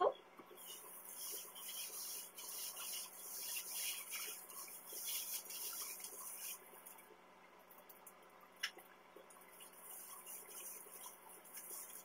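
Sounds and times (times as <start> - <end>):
gloved hands rubbing hair: 0.6 - 6.9, 9.6 - 12.0.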